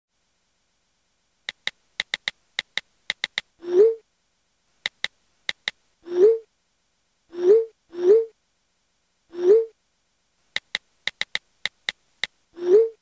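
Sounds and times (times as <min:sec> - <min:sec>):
typing clicks: 0:01.5 - 0:03.5, 0:04.8 - 0:05.8, 0:10.6 - 0:12.0.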